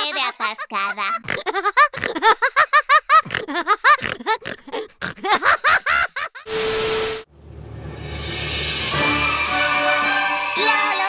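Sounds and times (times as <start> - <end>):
cartoon voice giggling: 0.0 - 6.5
static hiss: 6.5 - 7.3.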